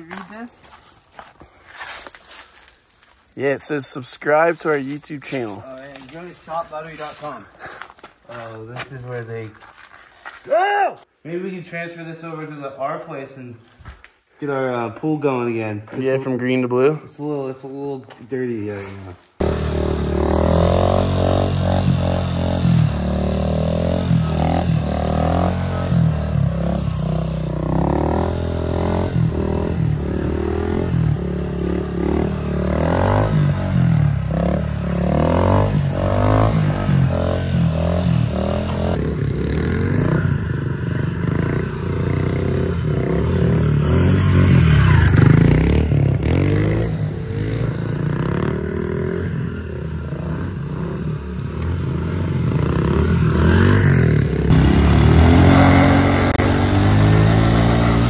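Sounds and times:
dirt bike engine revving: 19.4s - 58.0s.

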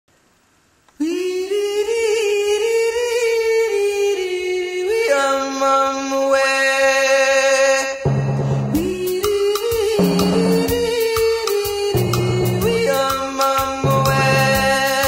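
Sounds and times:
sung melody with long notes: 8.0s - 15.0s.

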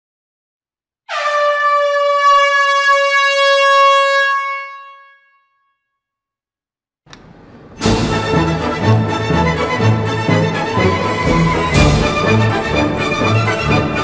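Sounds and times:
air horn blast: 1.1s - 5.8s.

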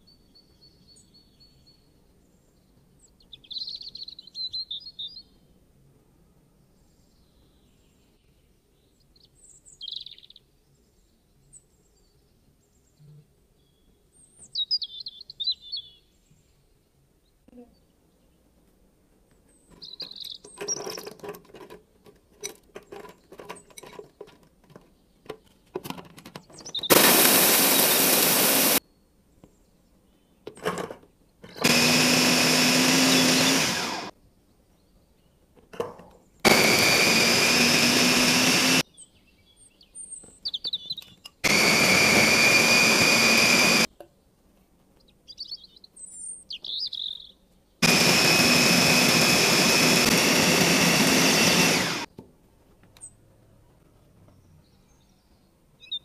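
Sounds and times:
electric food chopper motor whining: 26.9s - 28.8s, 31.5s - 34.1s, 36.4s - 38.8s, 41.4s - 43.9s, 47.8s - 52.1s.

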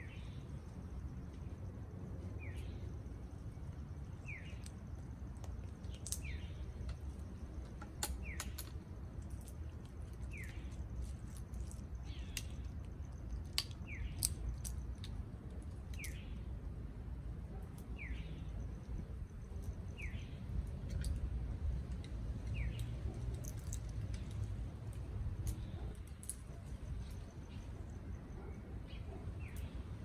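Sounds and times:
low background rumble: 0.0s - 30.0s
parrots cracking nut shells: 5.4s - 7.0s, 7.6s - 16.2s, 20.8s - 26.5s.

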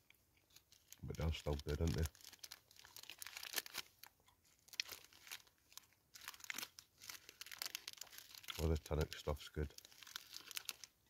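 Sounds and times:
wrapper crinkling: 0.4s - 11.0s
chewing crunchy wafer bar: 6.4s - 8.9s.

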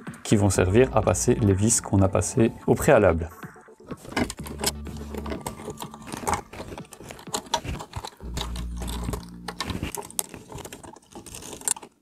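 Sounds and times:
plastic parts clicking: 3.9s - 12.0s.

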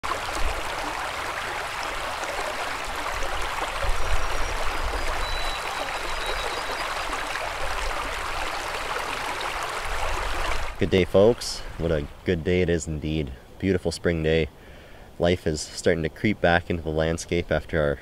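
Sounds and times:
river flowing over stones: 0.0s - 11.8s.

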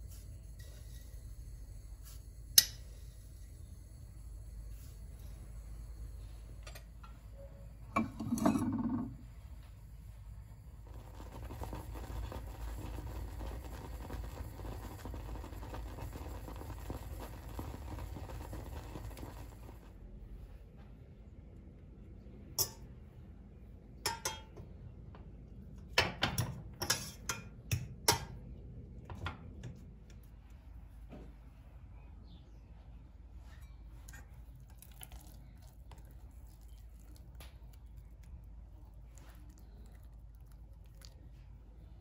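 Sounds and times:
porridge bubbling in a saucepan: 0.0s - 20.8s, 33.3s - 42.0s
spoon clinking against pan: 22.6s - 22.9s, 24.0s - 24.6s.

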